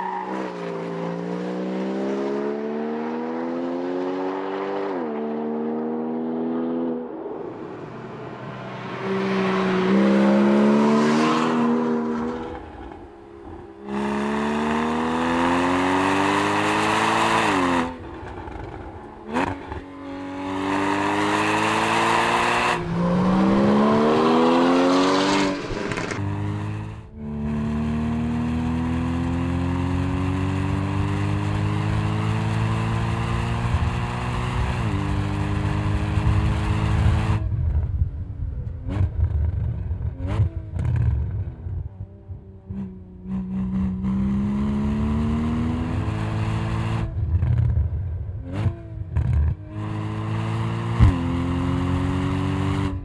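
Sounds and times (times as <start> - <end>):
car engine accelerating hard: 8.8 - 37.5, 42.7 - 47.8.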